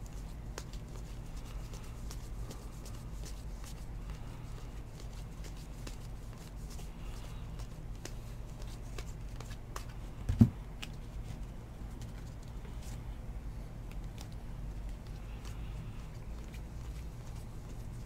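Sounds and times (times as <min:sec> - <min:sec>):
steady low hum: 0:00.0 - 0:18.0
trading cards flipping and sliding: 0:00.2 - 0:13.0.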